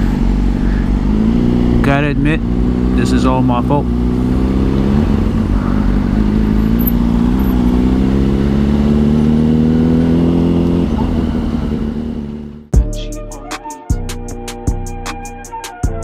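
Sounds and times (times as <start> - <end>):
motorcycle engine cruising: 0.0 - 12.7.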